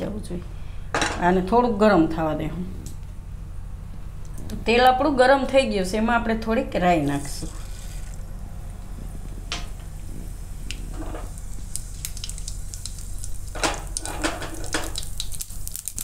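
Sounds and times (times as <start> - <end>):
steady low hum: 0.0 - 16.0
seeds sizzling and crackling in oil: 7.1 - 16.0.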